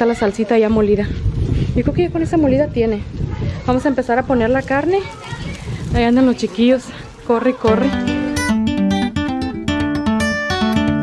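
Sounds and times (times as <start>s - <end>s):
acoustic guitar playing: 7.7s - 11.0s.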